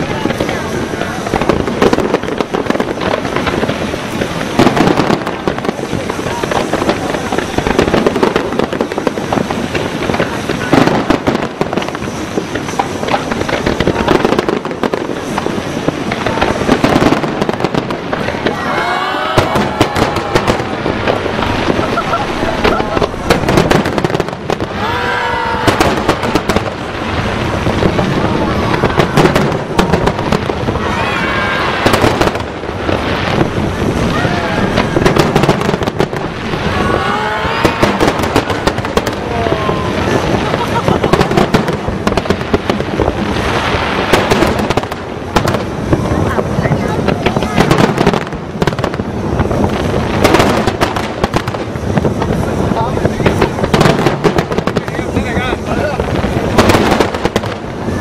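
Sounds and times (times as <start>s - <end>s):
firework shells bursting: 0.0s - 58.0s
fireworks pops and crackles: 0.0s - 58.0s
steady low rumble: 19.6s - 24.9s.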